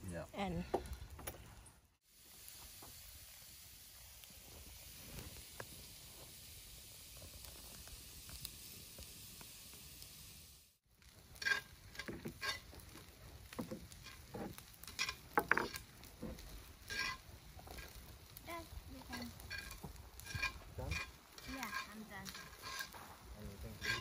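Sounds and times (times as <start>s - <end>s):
faint hiss: 2.0s - 24.0s
rice sizzling in skillet: 2.0s - 24.0s
metal tongs scraping skillet: 11.4s - 12.8s, 13.6s - 18.0s, 19.0s - 24.0s.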